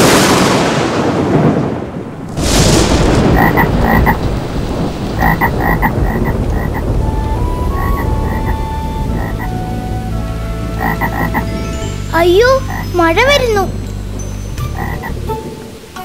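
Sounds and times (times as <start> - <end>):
thunder crack: 0.0 - 11.6
steady rain: 0.0 - 16.0
frog croaking: 3.3 - 4.2, 5.2 - 7.0, 7.6 - 9.6, 10.8 - 11.6, 12.6 - 13.0, 14.6 - 15.3.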